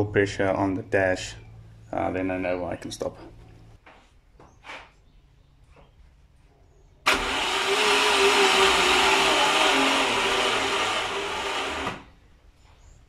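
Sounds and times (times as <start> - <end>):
starter motor cranking engine: 7.1 - 12.2.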